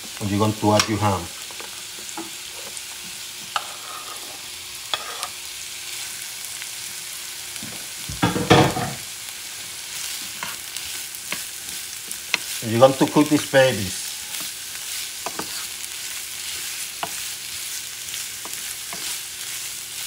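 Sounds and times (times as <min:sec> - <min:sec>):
food sizzling in a frying pan: 0:00.0 - 0:20.0
wooden spatula scraping a pan: 0:01.6 - 0:02.8, 0:03.4 - 0:05.4, 0:10.1 - 0:17.4, 0:18.1 - 0:19.7.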